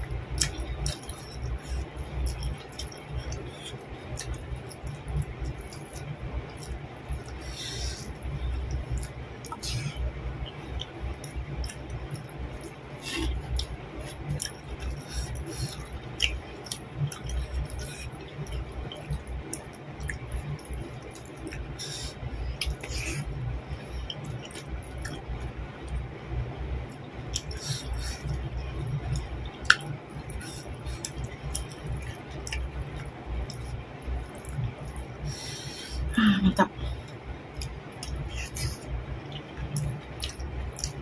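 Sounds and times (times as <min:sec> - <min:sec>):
wet chewing and mouth smacks: 0:00.2 - 0:26.1, 0:27.3 - 0:35.6, 0:36.9 - 0:41.0.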